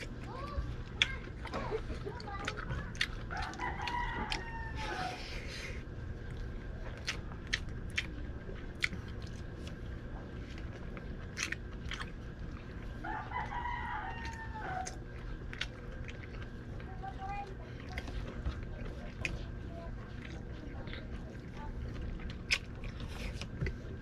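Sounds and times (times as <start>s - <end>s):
person eating with hands: 0.0s - 24.0s
rooster crowing: 3.3s - 5.2s, 13.0s - 15.0s.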